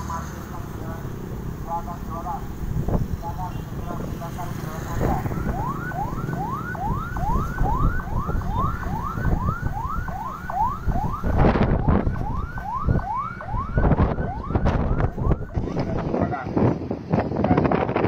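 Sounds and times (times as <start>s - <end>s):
wind rumble on microphone: 2.3s - 18.0s
electronic siren yelping: 4.5s - 16.6s.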